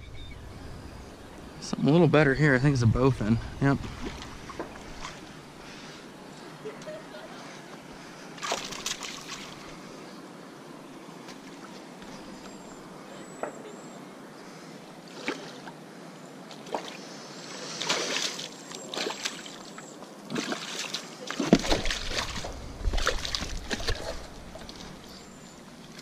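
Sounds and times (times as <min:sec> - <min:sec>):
water sloshing against rocks: 0:02.6 - 0:05.7, 0:08.3 - 0:09.8, 0:17.8 - 0:26.0
fish splashing at surface: 0:08.4 - 0:09.6.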